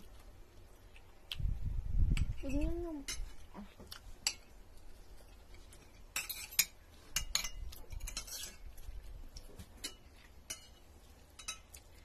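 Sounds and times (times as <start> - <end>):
cutlery clinking on plates: 5.7 - 8.6, 9.6 - 11.9.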